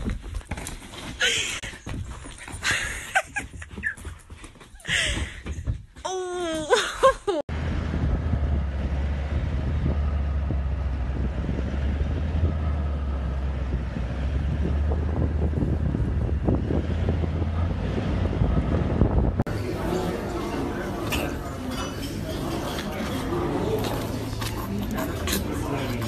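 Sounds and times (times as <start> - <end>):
vehicle engine rumbling: 7.5 - 26.0
wind noise: 7.6 - 19.5.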